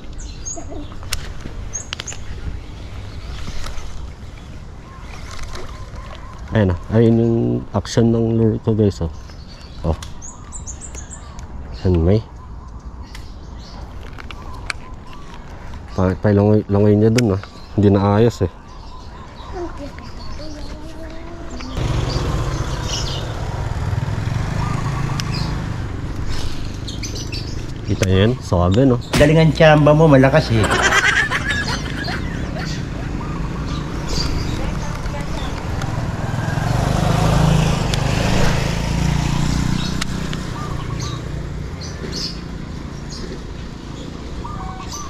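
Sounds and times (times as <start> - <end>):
bird chirps: 17.0 - 45.0
small engine rumbling: 18.9 - 45.0.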